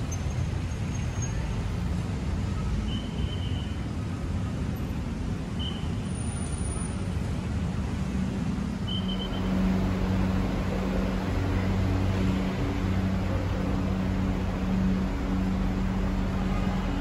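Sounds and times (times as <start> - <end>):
background traffic noise: 0.0 - 17.0
low hum: 9.0 - 17.0.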